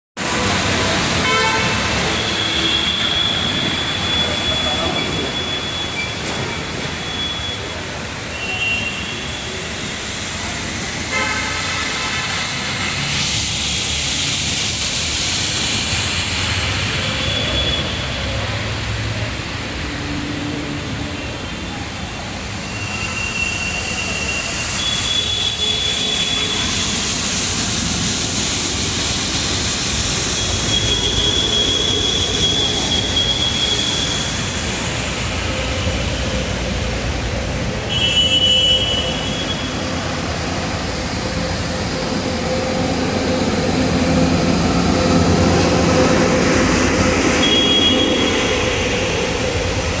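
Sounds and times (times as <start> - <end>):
traffic driving through water: 0.2 - 50.0
high squealing tones: 30.2 - 36.1.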